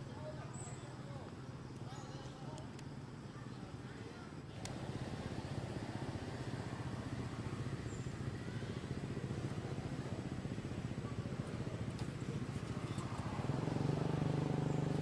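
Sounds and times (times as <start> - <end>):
motor engine running: 4.5 - 15.0.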